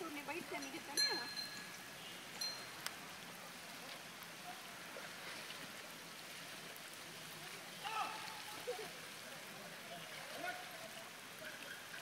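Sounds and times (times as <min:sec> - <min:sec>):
light rain patter: 0:00.0 - 0:12.0.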